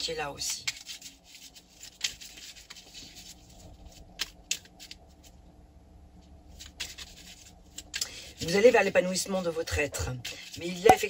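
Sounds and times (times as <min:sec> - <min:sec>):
cards being shuffled: 0:00.4 - 0:05.4, 0:06.5 - 0:08.8.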